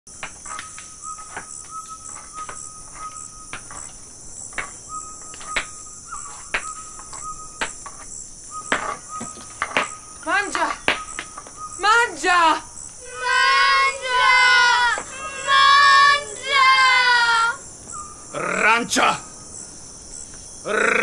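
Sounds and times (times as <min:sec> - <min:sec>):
crickets trilling: 0:00.1 - 0:21.0
low steady chirp: 0:00.1 - 0:21.0.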